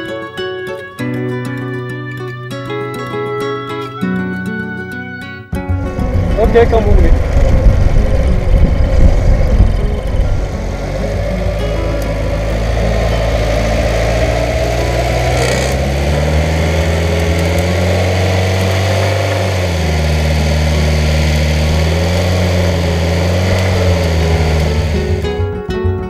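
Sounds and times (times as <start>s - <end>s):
tow winch engine running: 5.7s - 25.5s.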